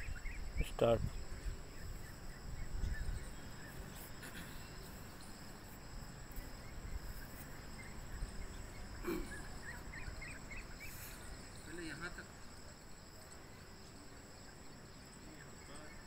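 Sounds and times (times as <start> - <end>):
wind rumble on microphone: 0.0 - 3.9
insects droning: 0.0 - 16.0.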